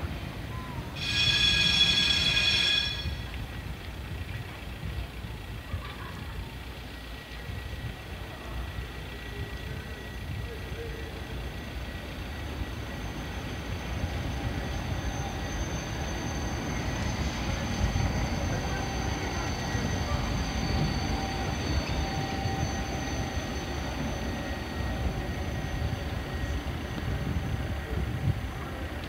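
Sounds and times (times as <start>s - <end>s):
tram wheels rumbling on rail: 0.0s - 29.0s
thin high whine: 0.8s - 3.8s, 9.3s - 28.9s.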